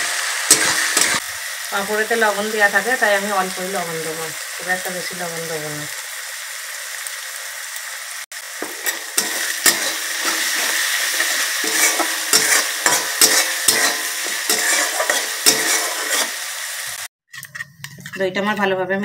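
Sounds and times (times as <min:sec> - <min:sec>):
food sizzling in oil: 0:00.0 - 0:17.1
metal spatula scraping a pan: 0:00.5 - 0:01.2, 0:08.6 - 0:18.3.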